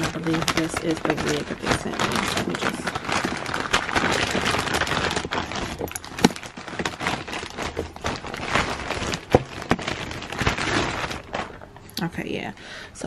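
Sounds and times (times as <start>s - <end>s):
plastic bag rustling and crinkling: 0.0s - 12.3s.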